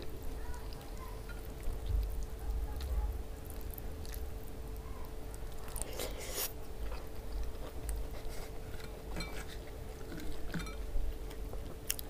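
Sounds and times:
faint steady hum: 0.0s - 12.0s
person chewing food: 0.0s - 12.0s.

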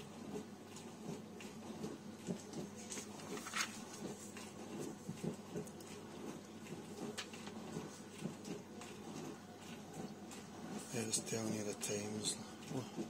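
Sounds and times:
paper pages rustling: 2.8s - 4.5s.

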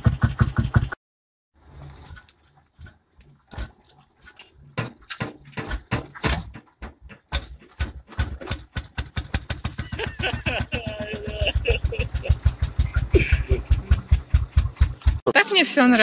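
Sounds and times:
tractor engine starting and chugging: 0.0s - 1.0s, 1.6s - 15.6s.

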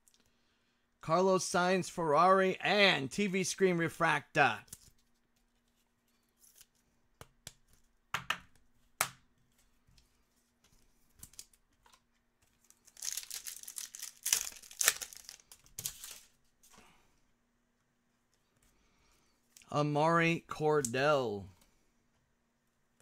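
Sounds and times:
foil wrapper tearing: 12.7s - 16.3s.

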